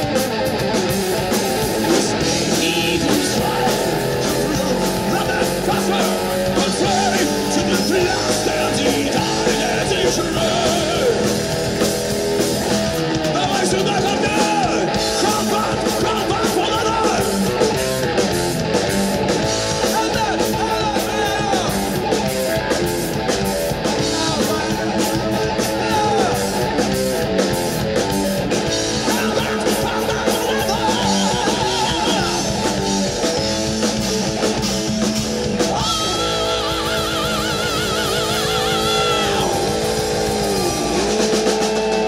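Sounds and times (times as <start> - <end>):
heavy metal band playing: 0.0 - 42.0
person singing: 1.8 - 11.4, 13.3 - 17.6, 19.8 - 21.9, 24.0 - 26.7, 29.0 - 32.8, 35.6 - 42.0.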